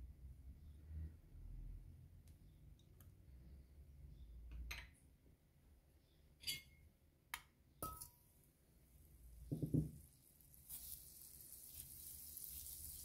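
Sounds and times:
spoon and dish clinking on metal pot: 0:06.4 - 0:06.8, 0:07.8 - 0:08.2.

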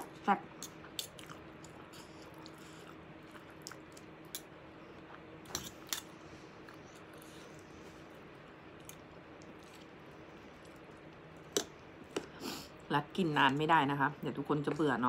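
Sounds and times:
person chewing: 0:00.6 - 0:12.4.

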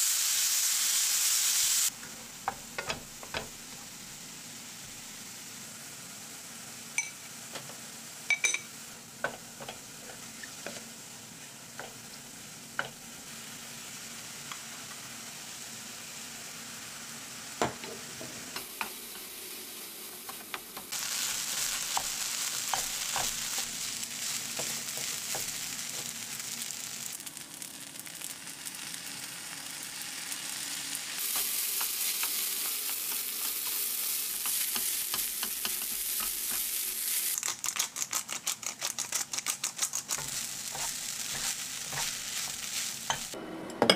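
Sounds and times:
food sizzling in a frying pan: 0:00.0 - 0:43.4
spatula tapping and scraping pan: 0:02.0 - 0:03.6, 0:08.3 - 0:09.9, 0:20.3 - 0:23.7, 0:24.5 - 0:25.6, 0:34.4 - 0:36.8.

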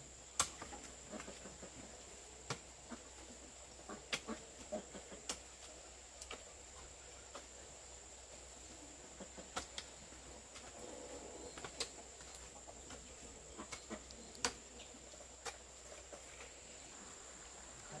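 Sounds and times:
faint birds: 0:00.0 - 0:18.0
high-pitched insect hum: 0:05.9 - 0:18.0.

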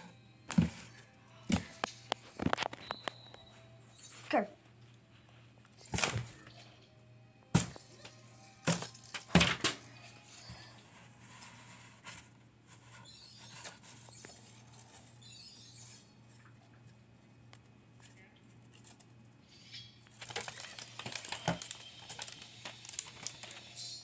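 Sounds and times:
paper crackling and knocking: 0:20.1 - 0:23.7
paper rustling: 0:20.1 - 0:23.8.

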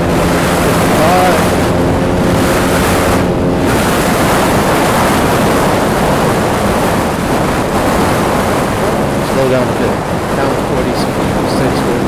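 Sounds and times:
wind rushing over microphone: 0:00.0 - 0:12.0.

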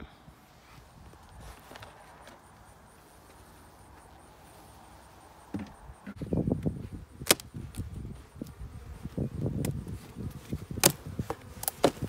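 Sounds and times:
wooden hive parts knocking: 0:05.5 - 0:06.2.

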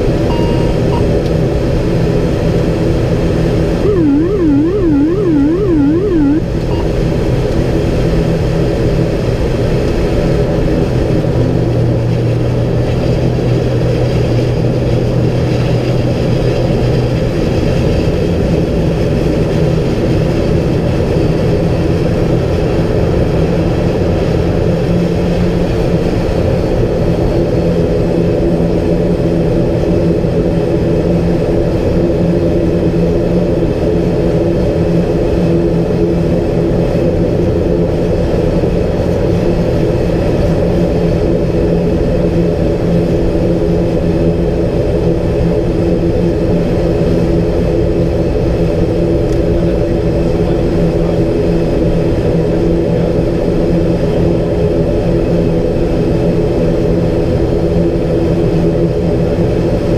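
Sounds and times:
turboprop engines droning: 0:00.0 - 0:59.9.

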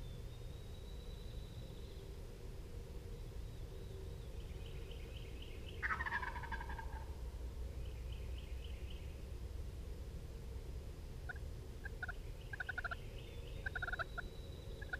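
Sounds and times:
turkey gobbling: 0:05.8 - 0:07.1, 0:11.3 - 0:13.0, 0:13.6 - 0:14.2.

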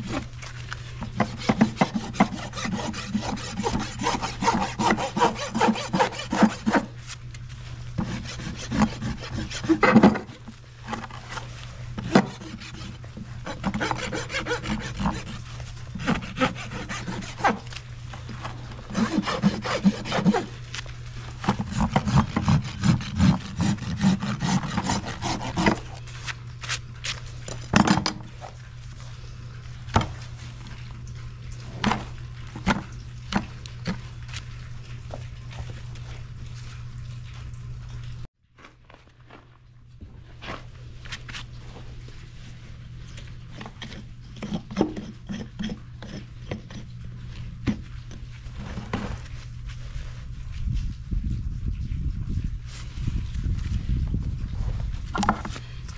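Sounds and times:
rasp filing hoof: 0:01.0 - 0:07.1, 0:08.0 - 0:10.4, 0:12.0 - 0:17.8, 0:18.8 - 0:20.6, 0:21.4 - 0:26.0, 0:43.6 - 0:46.9.

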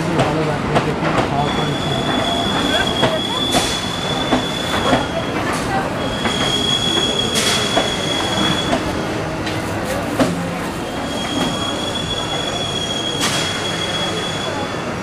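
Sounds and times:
rail rumbling: 0:00.0 - 0:13.9
train wheels squealing: 0:01.4 - 0:09.0, 0:10.8 - 0:15.0.

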